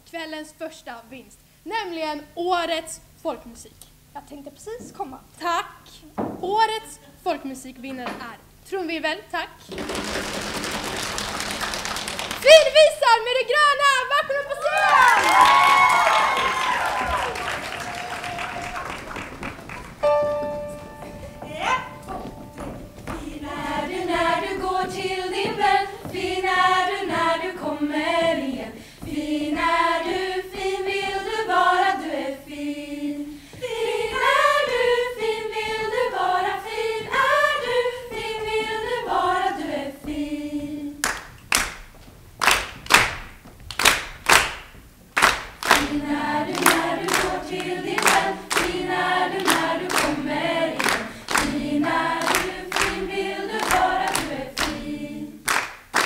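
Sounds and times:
people clapping a beat: 9.7s - 12.7s, 14.8s - 27.5s, 41.0s - 56.0s
women singing together: 21.0s - 41.2s, 45.6s - 55.7s.

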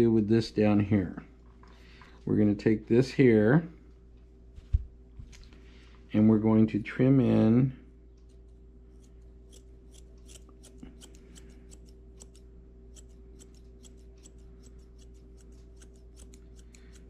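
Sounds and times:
faint steady hum: 0.0s - 17.0s
shears snipping hair: 8.3s - 17.0s.

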